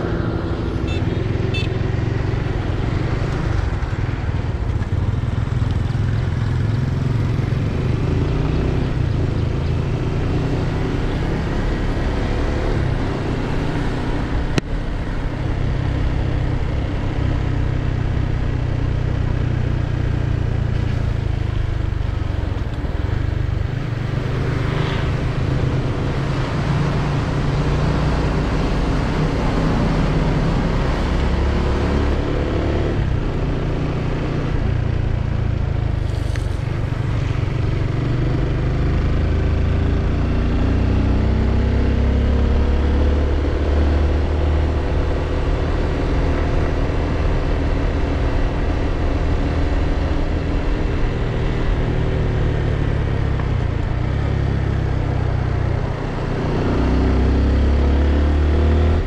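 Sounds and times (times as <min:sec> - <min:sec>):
motorcycle engine running: 0:00.0 - 0:11.6.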